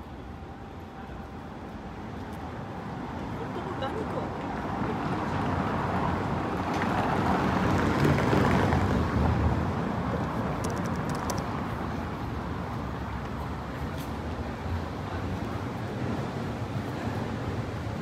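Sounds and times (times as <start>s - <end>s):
traffic hum: 0.0s - 18.0s.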